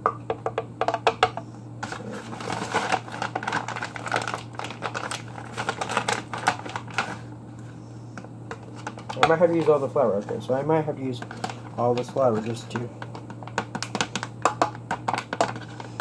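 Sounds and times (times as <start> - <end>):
steady low hum: 0.0 - 16.0
paper bag crinkling: 1.8 - 7.3.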